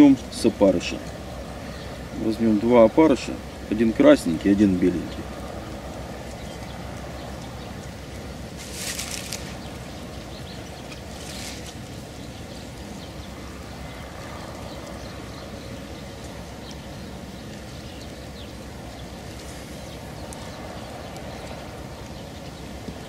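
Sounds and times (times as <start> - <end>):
wind rumble on microphone: 0.0 - 23.0
short hissing rustles: 8.5 - 9.8, 10.9 - 11.9.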